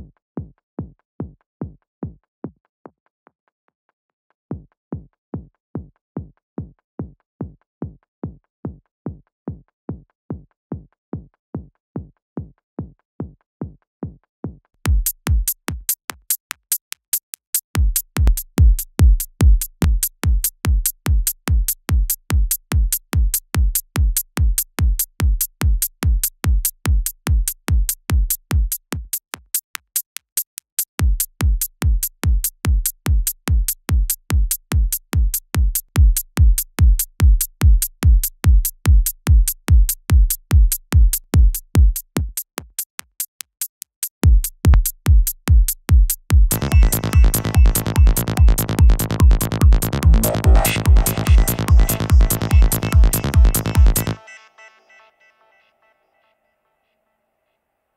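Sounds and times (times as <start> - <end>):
electronic kick drum: 4.5 - 16.3, 17.8 - 29.2, 31.0 - 42.8, 44.2 - 54.2.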